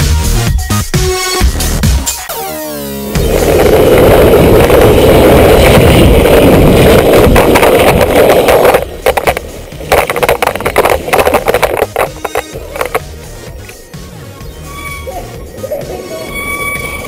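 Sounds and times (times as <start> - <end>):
wind and wheels rushing: 3.2 - 13.7
knocks and clatters: 6.8 - 13.1.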